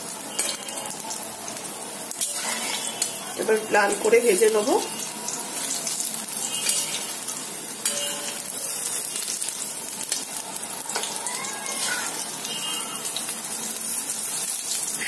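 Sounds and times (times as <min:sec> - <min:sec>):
food sizzling in oil: 0:00.0 - 0:15.0
metal spatula scraping pan: 0:02.2 - 0:03.1.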